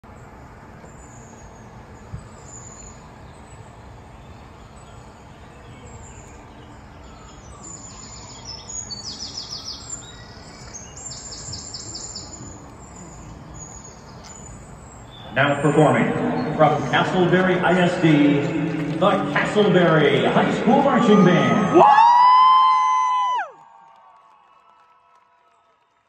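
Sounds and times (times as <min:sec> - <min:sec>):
stadium crowd murmur: 0:15.3 - 0:22.4.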